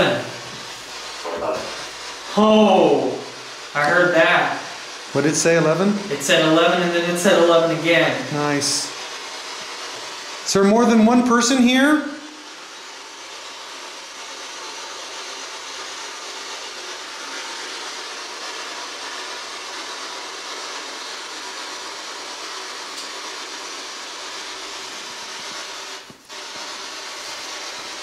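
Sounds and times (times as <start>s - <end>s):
radio static hiss: 0.0s - 28.0s.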